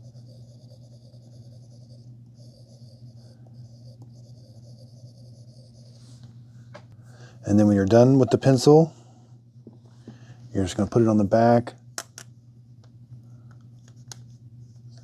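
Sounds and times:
stylus scribbling on screen: 0.0 - 6.2
steady low hum: 0.0 - 15.0.

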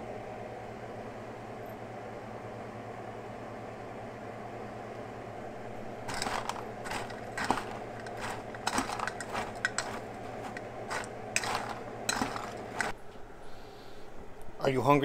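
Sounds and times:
steady low hum: 0.0 - 14.6
rattling kibble: 6.1 - 12.9.

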